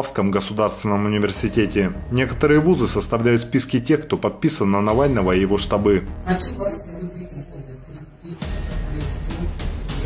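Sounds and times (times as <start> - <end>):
music with heavy bass: 8.4 - 10.0.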